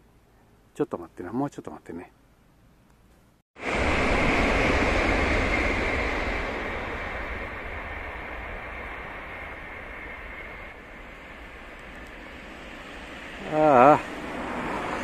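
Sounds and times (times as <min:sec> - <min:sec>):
train rushing past: 0:03.6 - 0:15.0.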